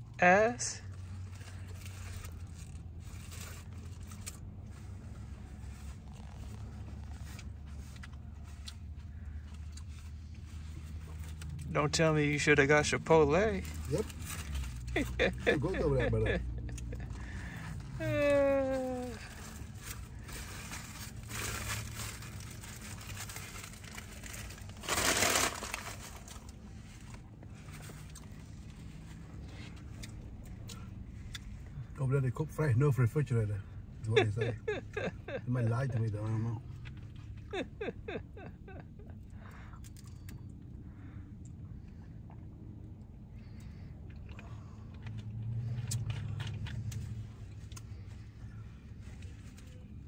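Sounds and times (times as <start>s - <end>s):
low hum in a truck cab: 0.0s - 50.0s
aluminium foil crinkling: 13.4s - 28.2s
loud crumple: 19.0s - 27.2s.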